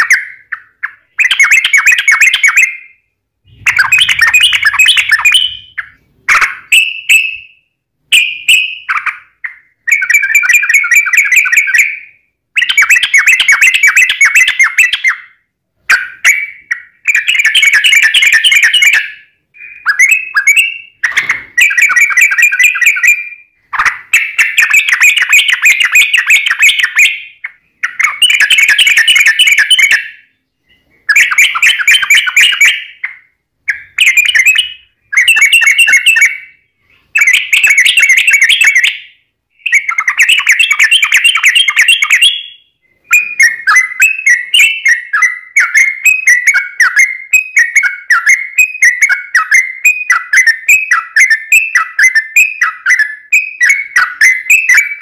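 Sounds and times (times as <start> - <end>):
bulbul singing: 0.0 - 55.0.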